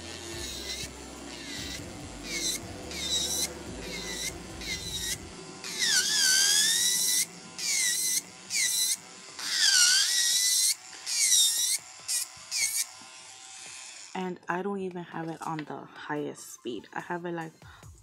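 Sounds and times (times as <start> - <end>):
electric nail drill whining: 0.0 - 14.3.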